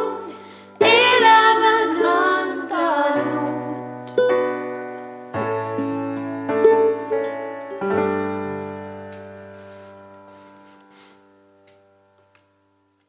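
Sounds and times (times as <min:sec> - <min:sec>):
young women singing: 0:00.0 - 0:04.1
ukulele: 0:00.0 - 0:09.8
electric piano chords: 0:00.0 - 0:11.6.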